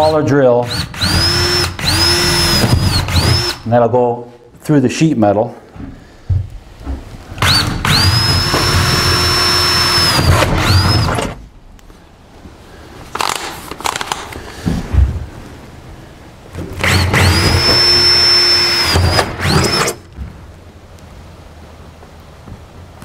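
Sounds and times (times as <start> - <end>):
cordless drill whine: 0.0 - 3.7, 7.4 - 11.4, 16.8 - 20.1.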